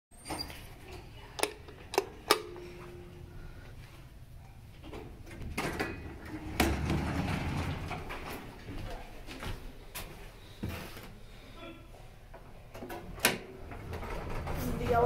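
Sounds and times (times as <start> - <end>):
elevator doors rumbling open: 5.3 - 8.6, 13.2 - 15.0.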